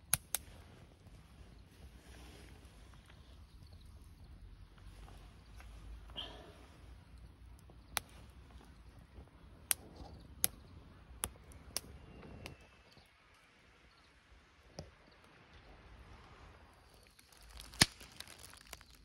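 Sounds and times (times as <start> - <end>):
firewood popping and snapping: 0.0 - 3.8, 6.2 - 12.6, 16.9 - 19.0.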